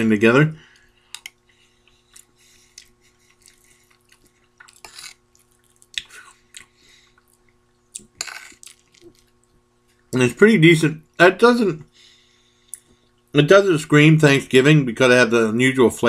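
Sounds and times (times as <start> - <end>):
wet chewing: 1.1 - 10.0
spoon scraping ceramic bowl: 4.8 - 5.2.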